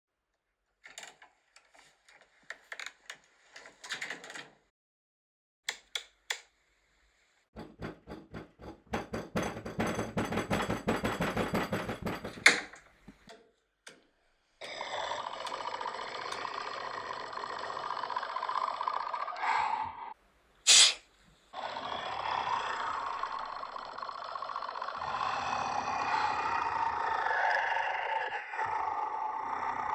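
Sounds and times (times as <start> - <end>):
clicks and taps: 5.7 - 6.5
steady breathing hiss: 19.4 - 27.6.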